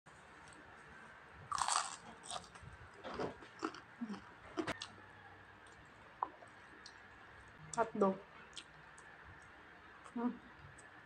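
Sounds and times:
crunchy chewing: 1.5 - 5.0.

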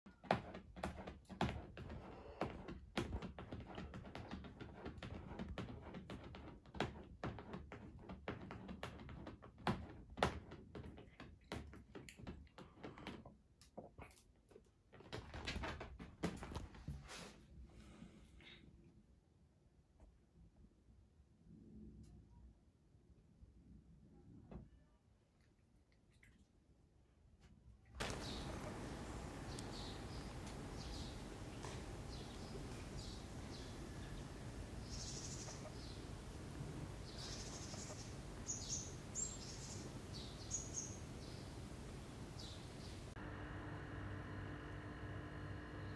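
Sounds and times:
small birds chirping: 28.0 - 43.2
low background hum: 28.0 - 45.9.

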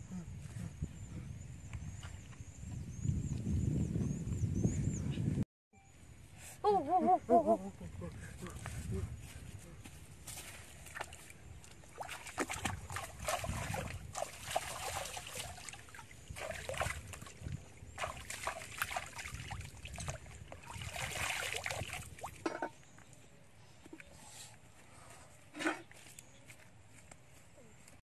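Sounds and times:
water splashing and sloshing: 10.2 - 22.9.

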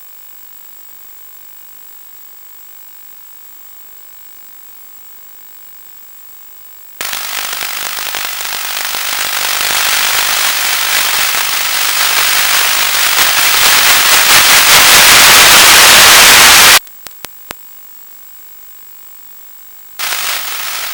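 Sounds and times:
crackling radio static: 7.0 - 17.6, 20.0 - 20.9.

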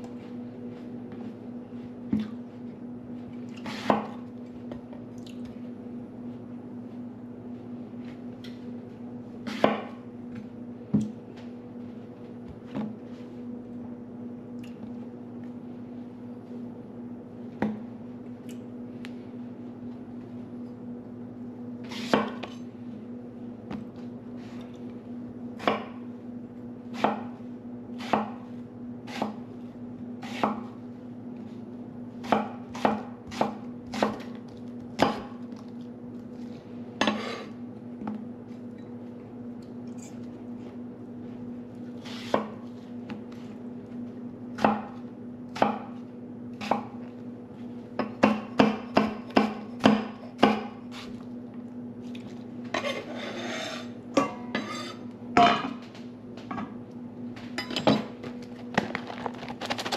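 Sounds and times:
knife chopping on wooden board: 9.5 - 10.0, 27.0 - 27.3, 28.0 - 28.4, 32.2 - 34.3, 48.0 - 50.8.

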